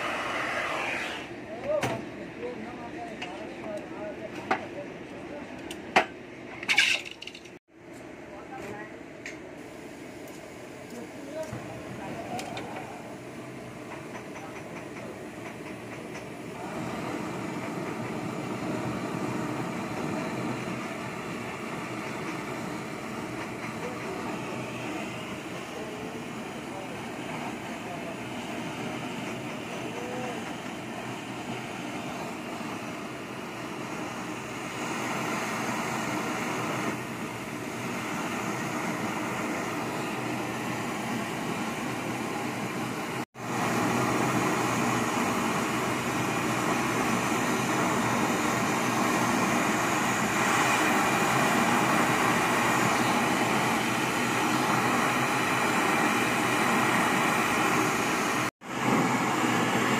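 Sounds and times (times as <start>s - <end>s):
gas torch hissing: 0.0s - 1.4s, 9.6s - 59.9s.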